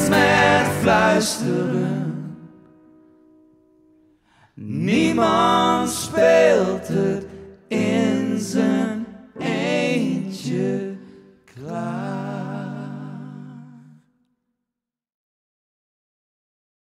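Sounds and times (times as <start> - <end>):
men singing in harmony: 0.0 - 2.6, 4.7 - 13.8.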